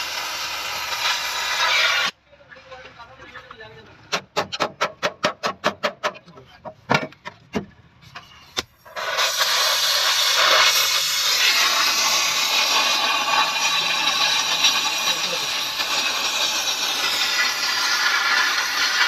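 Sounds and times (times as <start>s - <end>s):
welding torch hissing: 0.0s - 2.2s, 8.8s - 19.0s.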